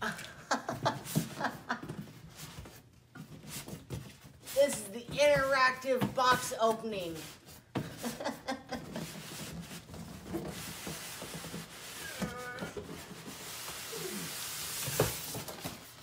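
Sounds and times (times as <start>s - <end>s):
cardboard scraping on styrofoam: 2.2s - 16.0s.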